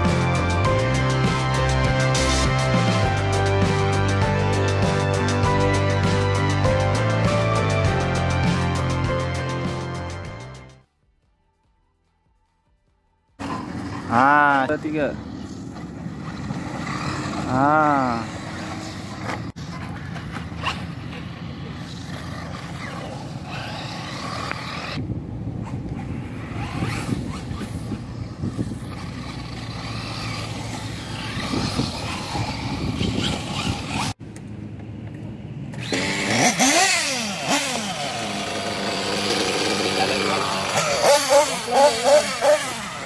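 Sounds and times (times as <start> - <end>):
rc buggy running on dirt: 13.3 - 34.2, 35.7 - 43.0
small engine revving: 13.4 - 25.0, 25.6 - 34.2, 35.7 - 43.0.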